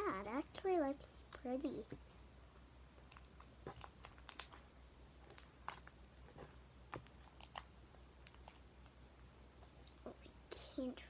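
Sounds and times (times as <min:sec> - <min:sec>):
slime squelching and popping: 0:02.9 - 0:09.0.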